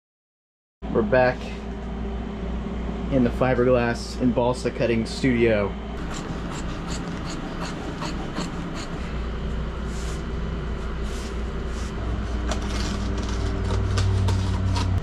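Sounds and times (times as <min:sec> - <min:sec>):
steady low hum: 0:00.8 - 0:15.0
knife scraping and cutting cloth: 0:06.0 - 0:09.0, 0:11.0 - 0:15.0.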